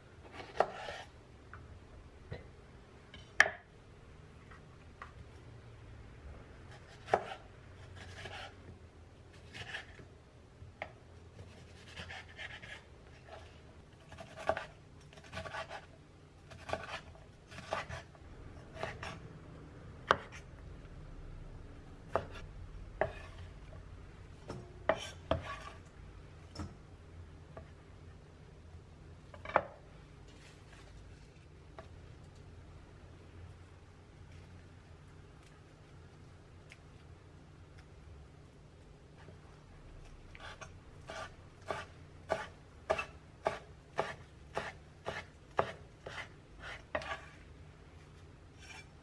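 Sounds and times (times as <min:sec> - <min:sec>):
low steady hum: 0:00.0 - 0:49.0
knife chopping on cutting board: 0:00.3 - 0:01.1, 0:06.7 - 0:07.4, 0:14.0 - 0:15.9, 0:16.5 - 0:18.1, 0:20.1 - 0:20.4, 0:23.0 - 0:23.3, 0:24.5 - 0:25.8, 0:40.4 - 0:47.4.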